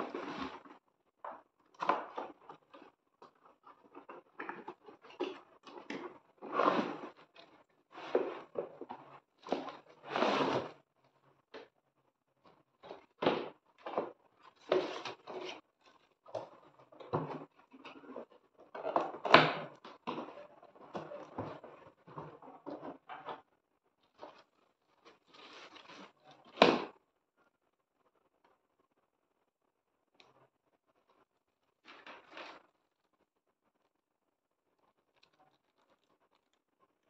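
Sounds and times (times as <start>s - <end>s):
cardboard and plastic scrapes and rustles: 0.0s - 10.9s, 12.6s - 26.9s, 31.8s - 32.8s.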